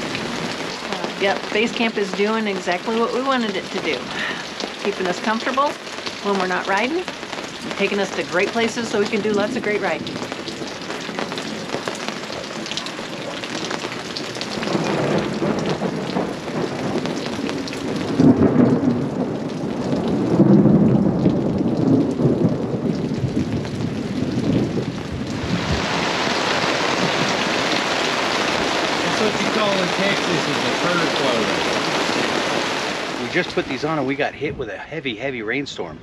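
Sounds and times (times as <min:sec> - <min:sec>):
rain falling: 0:00.0 - 0:36.0
thunder rumbling: 0:00.0 - 0:36.0.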